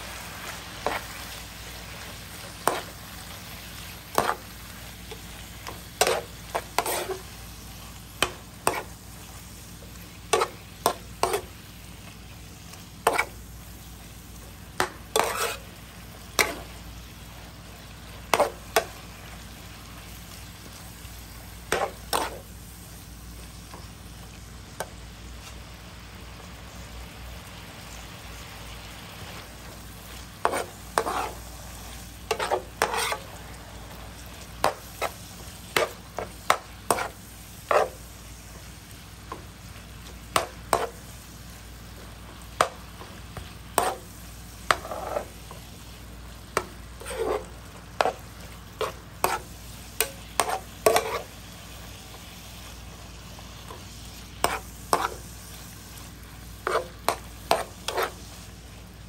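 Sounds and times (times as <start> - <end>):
beef sizzling in a wok: 0.0 - 59.0
metal spatula scraping pan: 4.1 - 4.4, 6.0 - 7.3, 8.2 - 8.9, 10.3 - 11.5, 13.0 - 13.4, 14.8 - 15.7, 21.7 - 22.4, 30.4 - 31.4, 32.3 - 33.4, 35.8 - 38.0, 43.8 - 44.0, 44.7 - 45.3, 46.6 - 48.2, 48.8 - 51.3, 54.4 - 55.2, 56.6 - 58.3.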